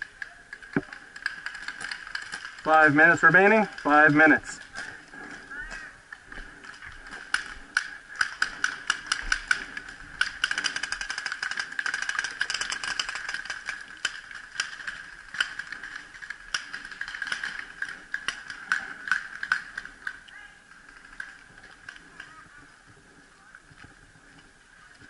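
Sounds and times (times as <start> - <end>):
paintball markers firing: 0.0 - 4.3, 7.0 - 20.2.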